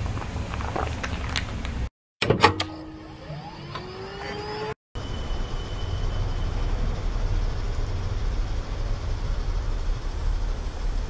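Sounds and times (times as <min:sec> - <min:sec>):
slowed car engine rumble: 0:00.0 - 0:01.9, 0:05.8 - 0:11.0.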